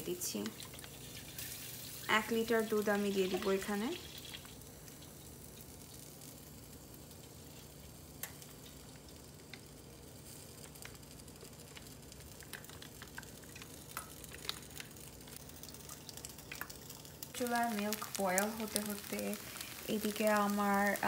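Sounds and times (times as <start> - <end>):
milk trickling into pan: 0.4 - 6.0, 10.5 - 19.8.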